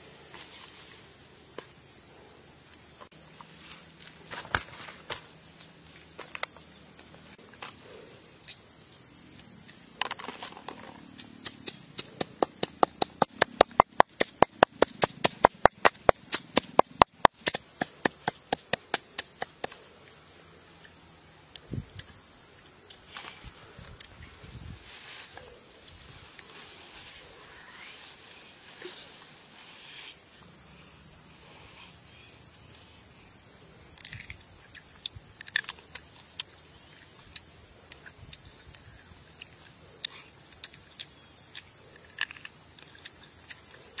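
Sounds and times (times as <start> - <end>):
wooden pestle pounding in mortar: 11.4 - 19.7.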